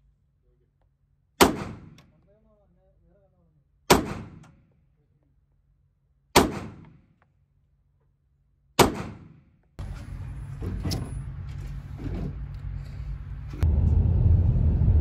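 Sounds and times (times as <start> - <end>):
pistol shots with echo: 1.4 - 2.1, 3.9 - 4.7, 6.3 - 7.1, 8.8 - 9.5
low rumble: 9.8 - 15.0.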